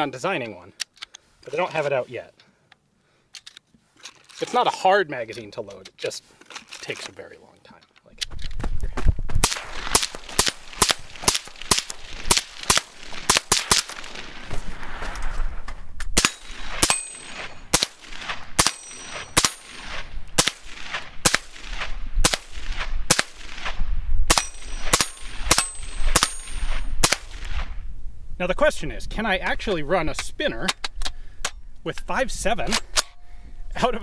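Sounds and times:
semi-automatic gunshots: 9.4 - 14.4, 16.2 - 26.4
steel targets ringing: 16.2 - 17.6.

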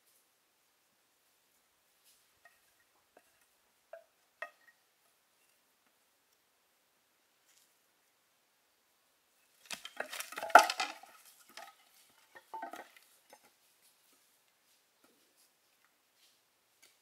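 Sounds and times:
hard objects knocking and clinking: 9.7 - 13.6.

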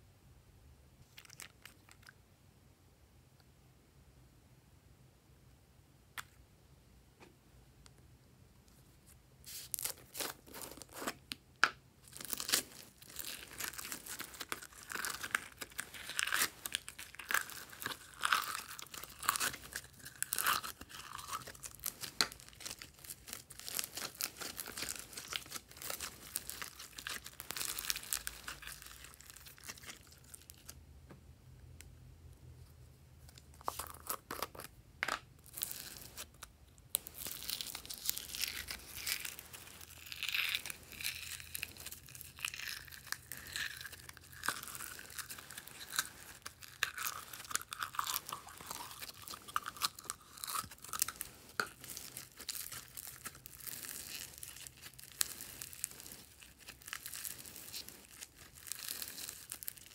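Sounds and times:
foam beads crackling and rustling: 12.0 - 30.8, 35.4 - 59.9.

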